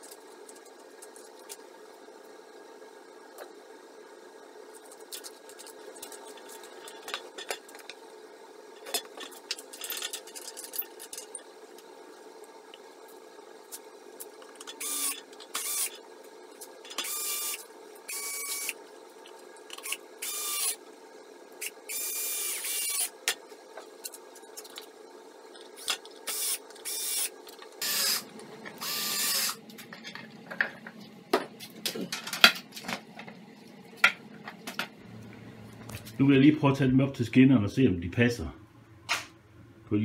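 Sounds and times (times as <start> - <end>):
drill driving screws into wood: 14.8 - 15.9, 21.9 - 23.1, 26.3 - 28.2, 28.8 - 29.6.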